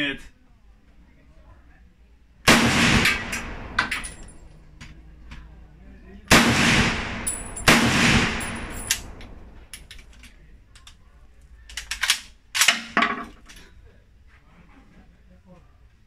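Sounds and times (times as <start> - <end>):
rifle shot echoing: 2.5 - 4.5, 6.3 - 9.8
rifle action metallic clacks: 3.0 - 5.0, 7.2 - 11.0, 11.6 - 13.6.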